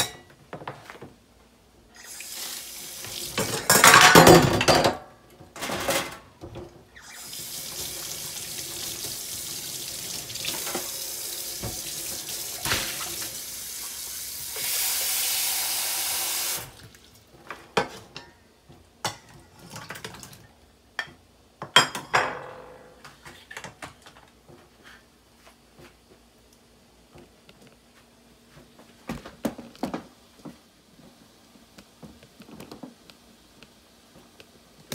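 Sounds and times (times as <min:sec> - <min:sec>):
kitchen tap running: 0:02.0 - 0:04.5, 0:06.9 - 0:17.3.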